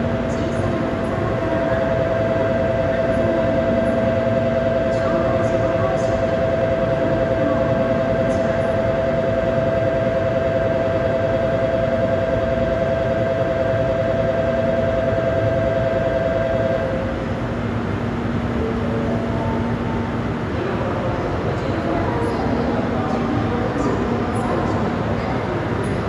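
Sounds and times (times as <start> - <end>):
platform hum: 0.0 - 26.0.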